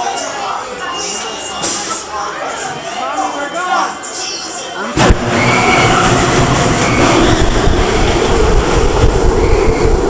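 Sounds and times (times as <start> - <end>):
roller coaster launch jolt: 5.0 - 10.0
roller coaster wheels rumbling: 5.0 - 10.0.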